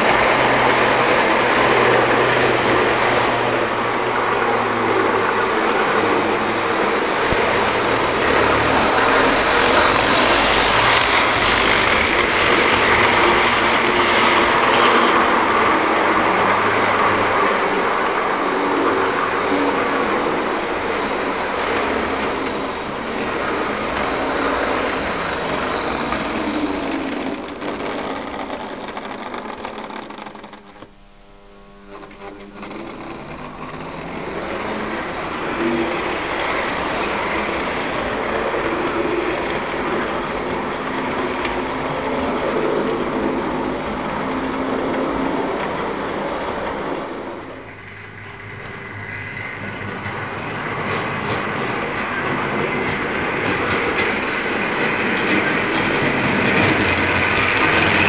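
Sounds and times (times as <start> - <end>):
wheels rumbling on rails: 0.0 - 30.9, 31.6 - 58.0
small electric motors whirring: 5.4 - 15.2, 22.6 - 38.2.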